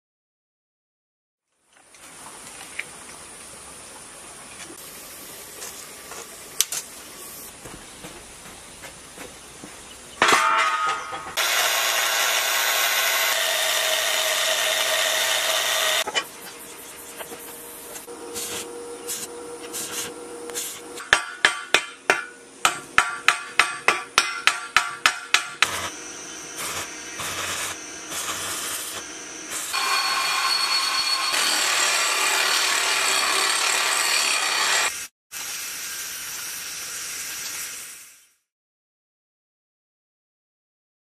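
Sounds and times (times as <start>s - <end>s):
sharp knocks on steel: 21.0s - 25.7s
electric welding arc crackling: 25.6s - 30.6s.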